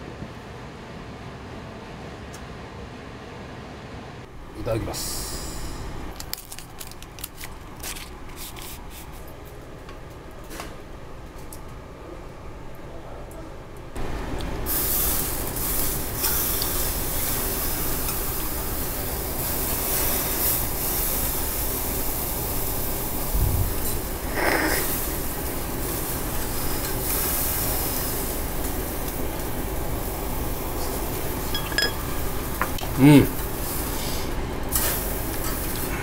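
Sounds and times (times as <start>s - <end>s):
meat sizzling on a grill: 14.7s - 36.0s.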